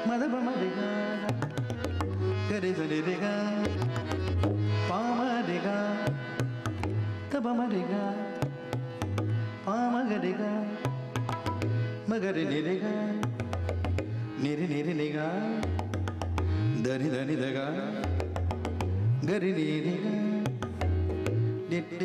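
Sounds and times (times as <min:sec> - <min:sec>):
man singing: 0:00.0 - 0:06.6, 0:07.2 - 0:08.6, 0:09.6 - 0:11.4, 0:12.0 - 0:13.5, 0:14.3 - 0:16.0, 0:16.6 - 0:18.5, 0:19.1 - 0:20.8, 0:21.6 - 0:22.0
tabla: 0:00.0 - 0:22.0
deep resonant bass: 0:20.6 - 0:21.7.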